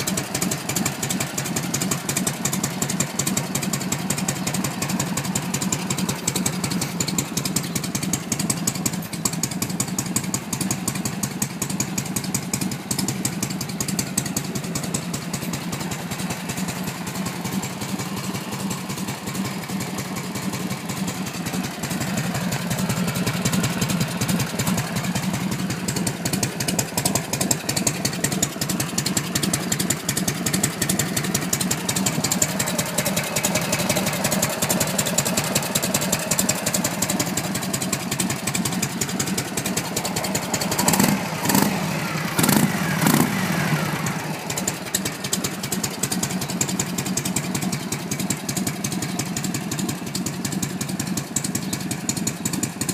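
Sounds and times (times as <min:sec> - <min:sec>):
motorcycle engine idling: 0:00.0 - 0:52.9.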